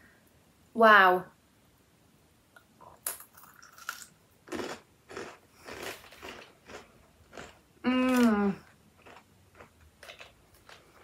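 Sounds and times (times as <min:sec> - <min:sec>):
chewing crunches: 0:03.3 - 0:11.0.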